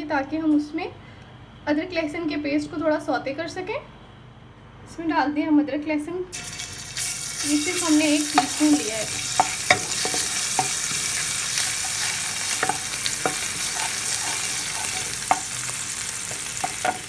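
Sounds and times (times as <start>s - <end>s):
paste sizzling in hot oil: 6.3s - 17.0s
wooden spatula knocking pan: 8.2s - 17.0s.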